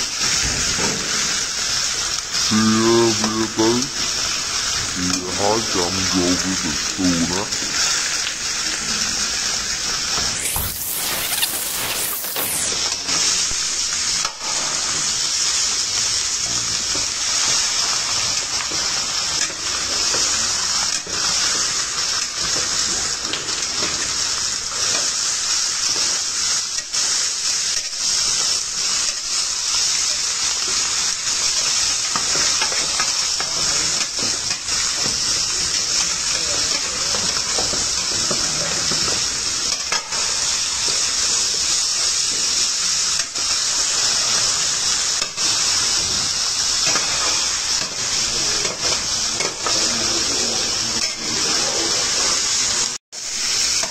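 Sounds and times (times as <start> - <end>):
meat sizzling in a pan: 0.0 - 53.9
metal spatula scraping: 10.4 - 12.7.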